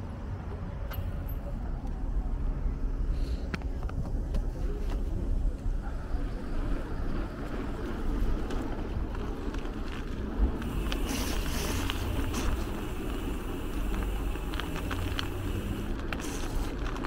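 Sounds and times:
bicycle road noise: 0.0 - 17.0
hiss: 10.6 - 17.0.

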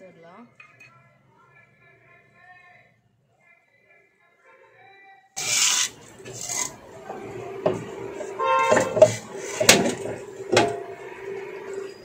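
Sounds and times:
metal rotor scraping: 5.4 - 12.0
short ringing squeal: 10.0 - 12.0.

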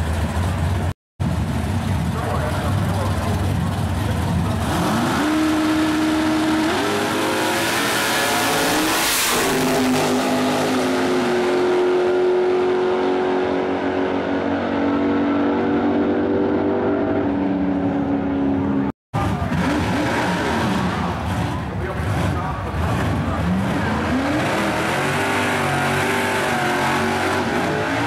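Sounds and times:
drag car engines accelerating: 0.0 - 28.0.

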